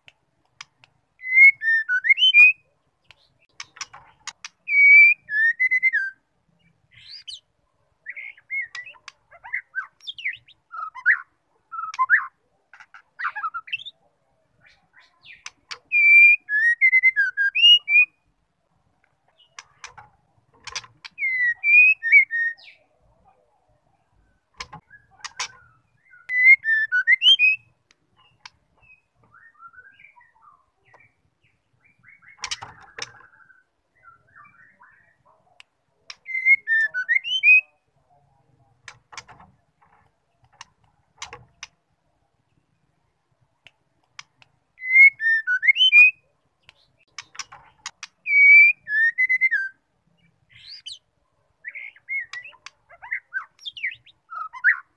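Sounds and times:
sharp clicks: 0.0s - 1.0s, 19.6s - 21.2s, 38.8s - 41.8s
bird singing whistled phrases: 1.2s - 2.6s, 4.7s - 6.2s, 9.5s - 12.3s, 15.3s - 18.2s, 21.2s - 22.8s, 26.0s - 27.7s, 28.8s - 30.6s, 36.2s - 37.8s, 44.8s - 46.2s, 48.2s - 49.8s, 51.7s - 54.9s
bird chatter: 3.1s - 4.9s, 24.5s - 26.6s, 28.2s - 35.3s, 46.8s - 48.9s, 51.7s - 54.9s.

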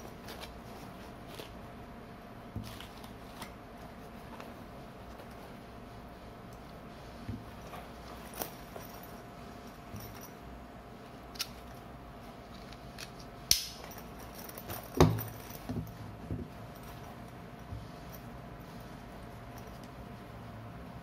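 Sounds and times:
bag strap and hardware clicking: 11.3s - 11.7s, 12.5s - 16.0s.

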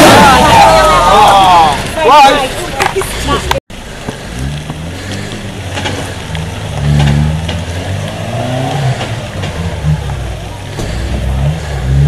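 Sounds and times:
vehicle engine revving under load: 4.0s - 12.0s.

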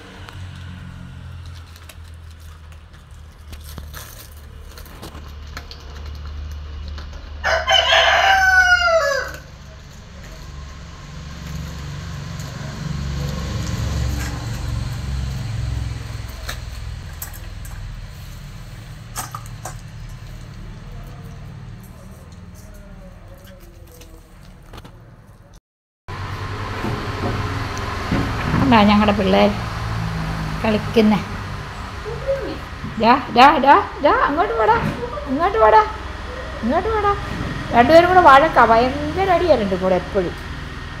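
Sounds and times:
rooster crowing: 7.4s - 9.6s.

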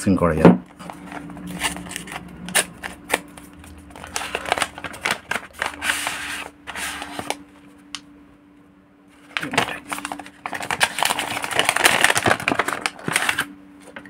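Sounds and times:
package rustling: 0.8s - 7.6s, 9.2s - 14.0s.

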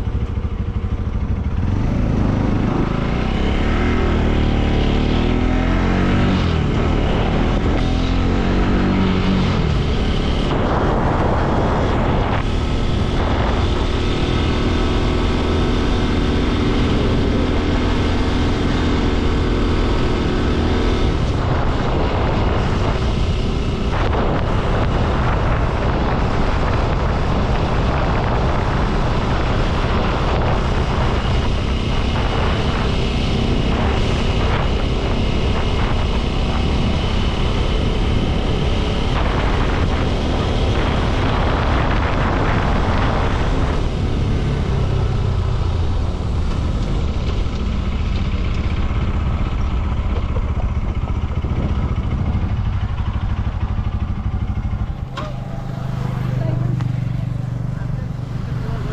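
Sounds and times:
motorcycle engine cruising: 0.0s - 58.9s
wind rush on microphone: 0.0s - 58.9s.

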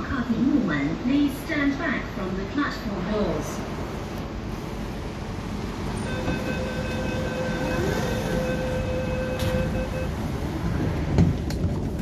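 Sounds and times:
train and station noise: 0.0s - 12.0s
door warning tone: 6.0s - 10.2s
train doors knocking shut: 6.1s - 7.6s, 8.3s - 9.9s, 10.9s - 12.0s.

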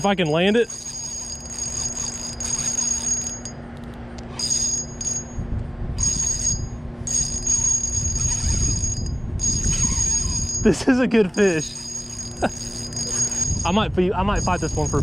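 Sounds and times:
fishing reel drag whining: 0.0s - 5.4s, 6.0s - 15.0s
low rumble: 4.6s - 15.0s.

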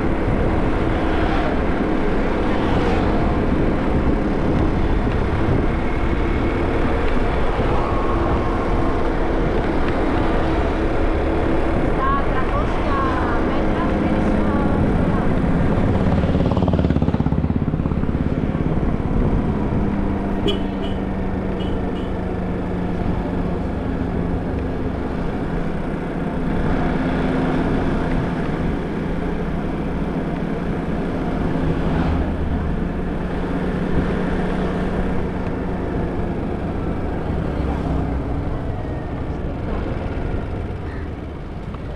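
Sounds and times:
wind noise on microphone: 2.8s - 10.4s.

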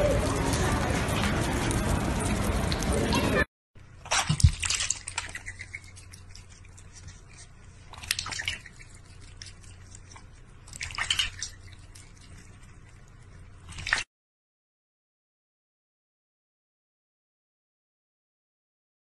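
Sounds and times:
duck dabbling in water: 4.0s - 14.0s
cat lapping water: 4.0s - 14.1s
water splashing in metal bowl: 4.1s - 6.6s, 7.9s - 9.5s, 10.7s - 12.3s, 13.7s - 14.1s.

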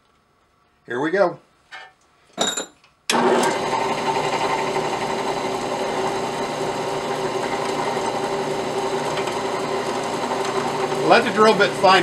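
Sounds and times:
drill press motor humming: 3.1s - 12.0s.

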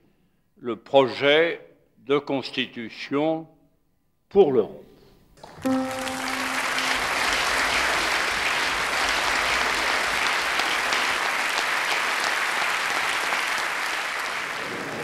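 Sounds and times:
audience applauding: 5.4s - 15.0s.

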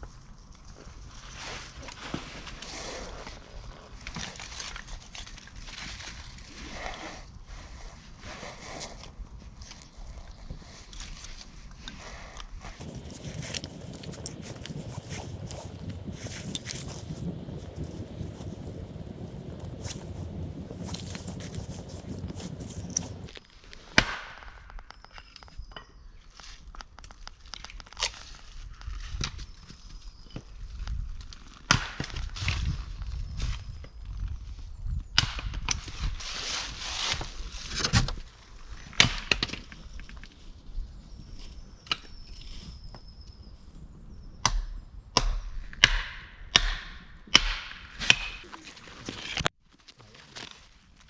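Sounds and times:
low rumbling handling noise: 12.8s - 23.3s
axe chopping wood: 24.0s - 24.6s, 31.7s - 32.3s, 44.4s - 48.5s
wood splitting crack: 31.6s - 32.4s, 45.2s - 49.5s.

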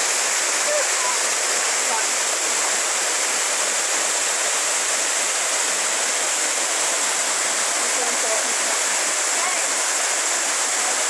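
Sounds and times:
waterfall pouring onto rocks: 0.0s - 11.0s.

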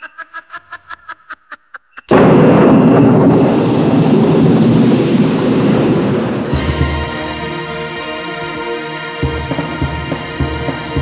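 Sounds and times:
loud thunderclap and rumble: 2.1s - 7.2s.

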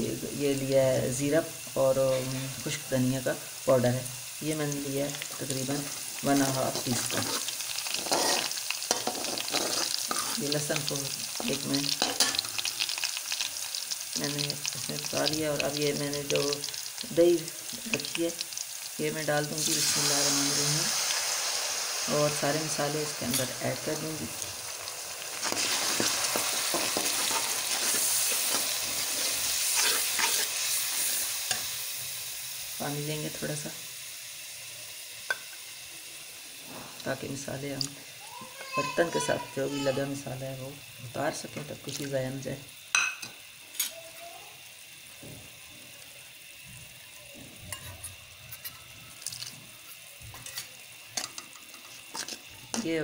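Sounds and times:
masala sizzling in pot: 0.0s - 53.0s
spices frying in hot ghee: 0.0s - 53.0s
metal spoon scraping pan: 5.9s - 10.5s, 11.4s - 12.5s, 25.4s - 31.7s.

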